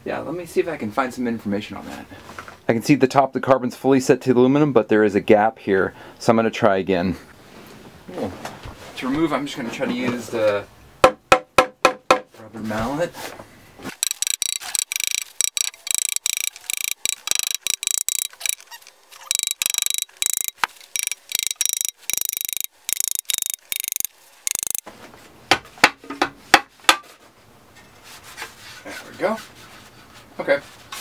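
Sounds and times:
rapid clicking and rattling: 13.9s - 24.8s.

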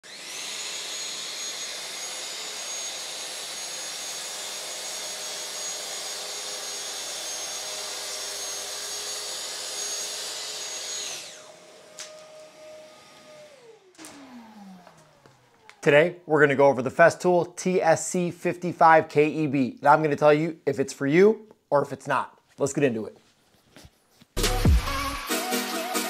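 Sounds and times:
dust extractor humming: 0.0s - 16.2s
track saw whining: 0.0s - 16.5s.

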